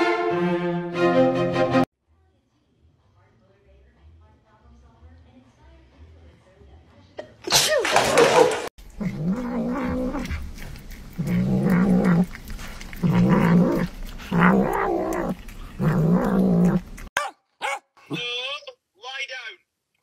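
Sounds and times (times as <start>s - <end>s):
cat growling yowls: 9.0s - 17.8s.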